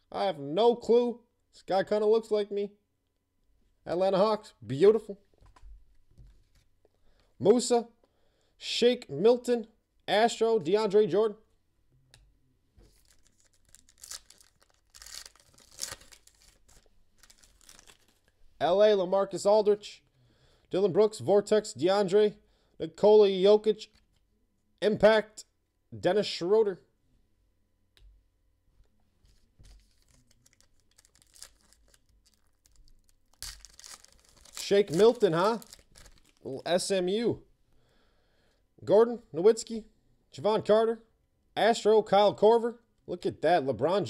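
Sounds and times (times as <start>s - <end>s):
foil wrapper tearing: 12.9s - 18.3s, 29.7s - 36.5s
foil wrapper crinkling: 12.9s - 18.4s, 29.6s - 36.5s.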